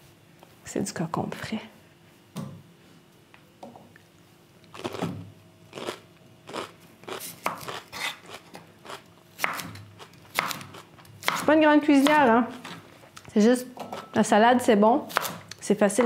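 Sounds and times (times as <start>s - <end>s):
knife cutting cucumber on board: 7.3s - 8.2s, 9.4s - 12.8s, 15.1s - 16.0s.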